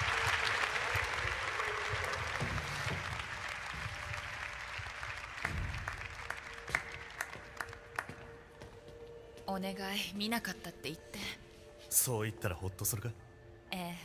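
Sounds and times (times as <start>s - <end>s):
crowd applause: 0.0s - 8.1s.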